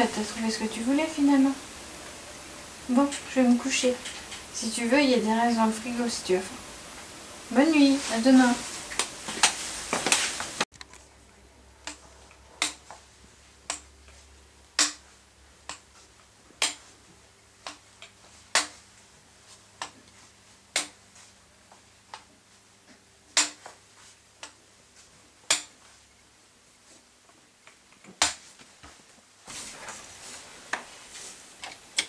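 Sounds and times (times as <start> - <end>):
faint steady hum: 0.0 - 32.0
footsteps on hard floor: 8.0 - 10.6.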